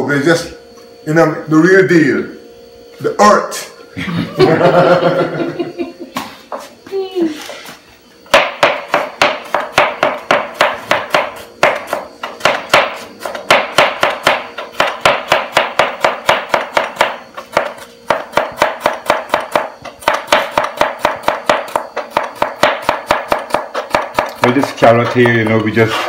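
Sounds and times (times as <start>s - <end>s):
knife chopping on cutting board: 8.3s - 26.0s.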